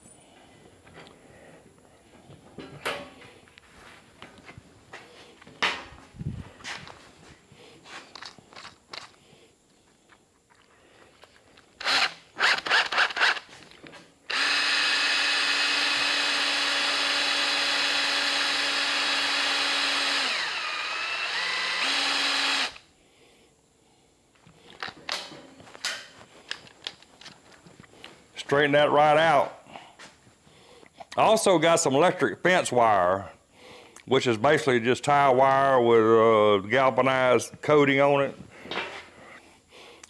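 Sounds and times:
cordless drill running: 11.8s - 13.5s, 14.3s - 22.8s.

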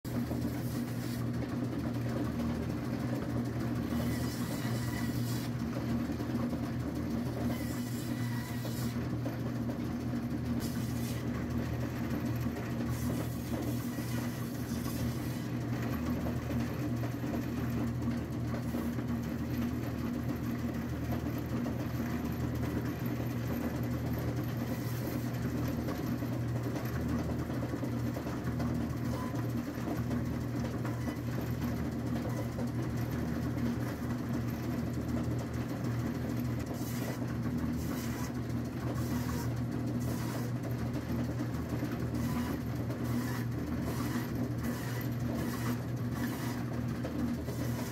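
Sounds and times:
saw blade rasping: 0.1s - 1.4s, 3.8s - 5.7s, 7.2s - 9.1s, 10.6s - 11.5s, 12.2s - 15.6s, 24.6s - 25.4s, 36.6s - 40.7s, 42.0s - 47.9s
band saw motor hum: 0.1s - 47.9s.

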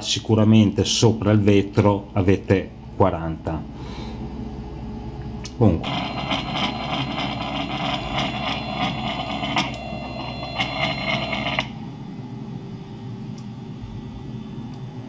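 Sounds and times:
stepper motors whining and ticking: 5.8s - 11.8s.

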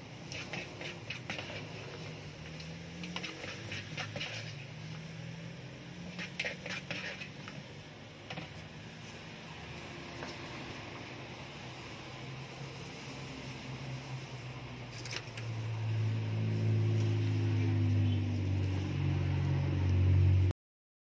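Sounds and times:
spoon scraping in plastic bowl: 0.2s - 4.8s, 6.0s - 8.7s, 14.9s - 15.5s.

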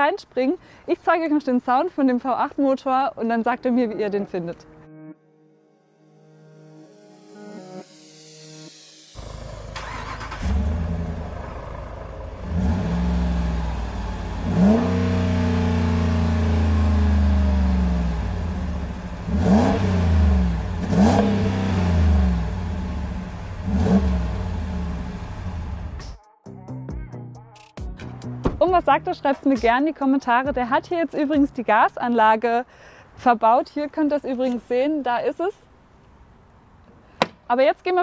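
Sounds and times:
engine cranking and starting: 9.2s - 12.8s
engine idling and revving: 9.2s - 26.2s.

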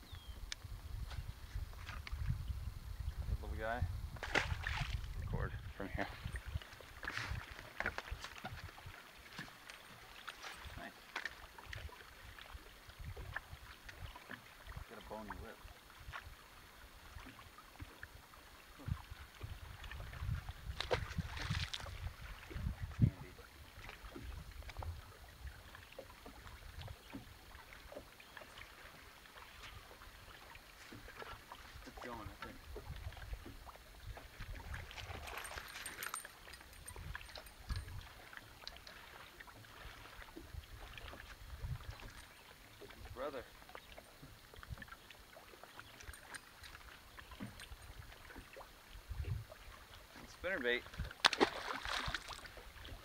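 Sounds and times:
wind rumble on microphone: 0.0s - 9.0s, 12.9s - 13.7s, 18.8s - 25.7s, 31.7s - 35.8s, 36.7s - 38.2s, 40.3s - 42.2s, 49.0s - 49.7s, 50.8s - 51.3s
waves slapping boat hull: 3.2s - 53.0s.

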